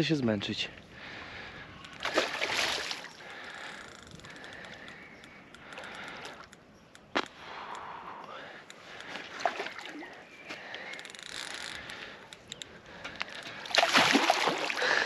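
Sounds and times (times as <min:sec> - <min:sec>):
fish thrashing water splashing: 0:02.0 - 0:03.1, 0:13.6 - 0:15.0.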